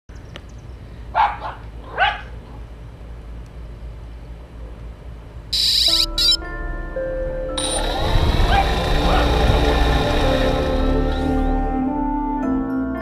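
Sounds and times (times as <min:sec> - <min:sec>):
dog barking: 0:01.1 - 0:02.4, 0:08.4 - 0:09.3.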